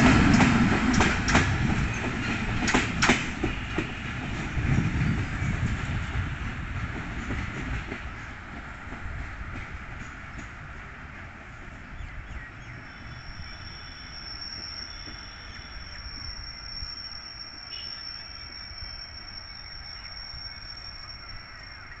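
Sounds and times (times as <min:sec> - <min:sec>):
insect high-pitched calling: 0:12.8 - 0:22.0.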